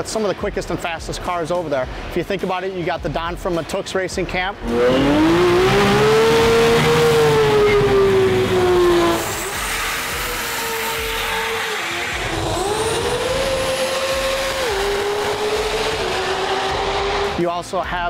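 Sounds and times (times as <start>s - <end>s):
car engine at high revs: 4.6s - 17.4s.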